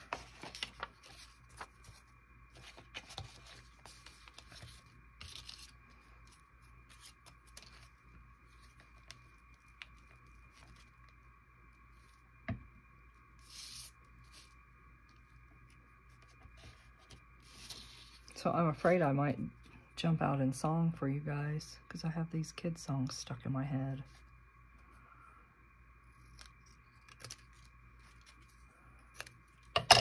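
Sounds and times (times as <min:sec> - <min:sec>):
paper rustling and tearing: 0:00.0 - 0:02.0.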